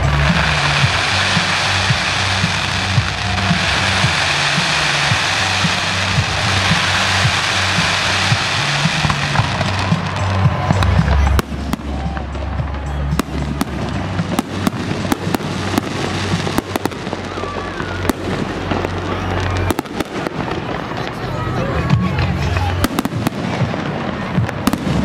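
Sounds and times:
fireworks bangs and crackles: 0:00.0 - 0:25.0
loud music with deep bass: 0:00.0 - 0:25.0.

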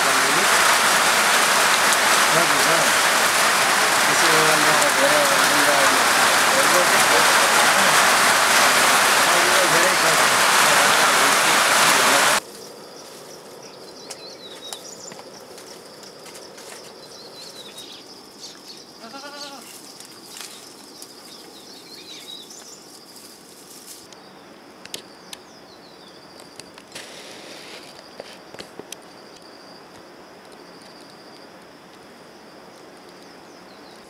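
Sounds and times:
loud hiss: 0:00.0 - 0:12.4, 0:26.9 - 0:27.9
faint chirps and clicks: 0:14.0 - 0:18.8, 0:19.9 - 0:22.8, 0:24.8 - 0:25.6, 0:27.9 - 0:32.0, 0:32.7 - 0:34.0
goat bleating: 0:19.0 - 0:19.7.

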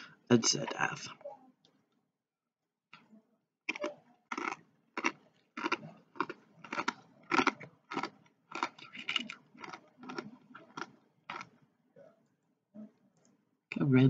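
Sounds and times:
person chewing crunchy chips: 0:03.7 - 0:11.6.

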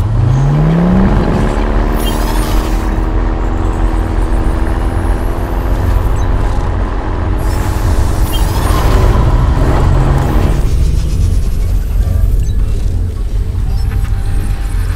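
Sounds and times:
diesel truck engine rumbling: 0:00.0 - 0:14.9
whooshing sweeps: 0:07.2 - 0:14.9.

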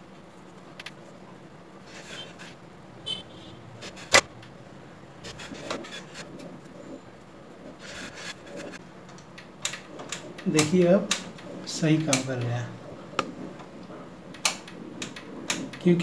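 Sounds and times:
plastic rubbing: 0:05.2 - 0:08.8.

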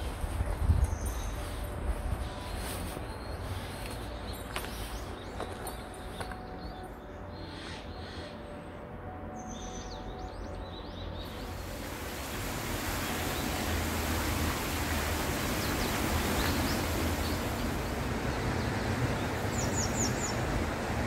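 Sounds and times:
small birds chirping: 0:09.4 - 0:21.0
steady rushing noise: 0:11.4 - 0:21.0.

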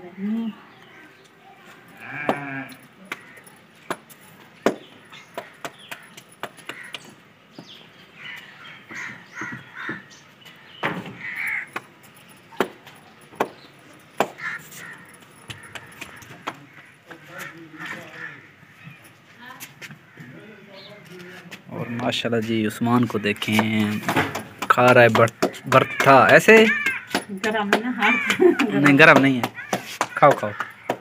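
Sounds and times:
hands slapping dough: 0:03.9 - 0:07.2, 0:23.5 - 0:31.0
animal calls: 0:25.3 - 0:31.0.

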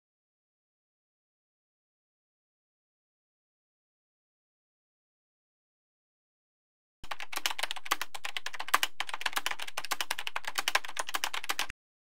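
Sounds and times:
rapid keyboard typing: 0:07.0 - 0:11.8.

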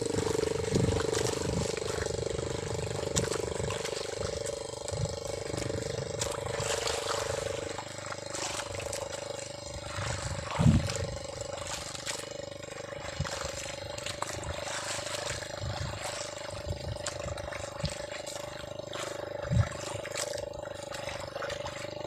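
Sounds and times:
motorboat engine hum: 0:00.0 - 0:22.0
wind and water noise: 0:00.0 - 0:22.0.

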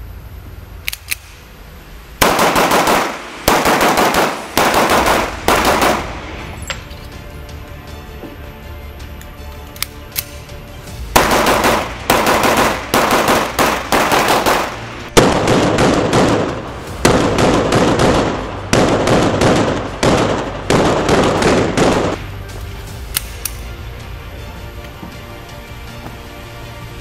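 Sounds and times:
pistol shots echoing indoors: 0:02.2 - 0:07.0, 0:11.1 - 0:22.3.

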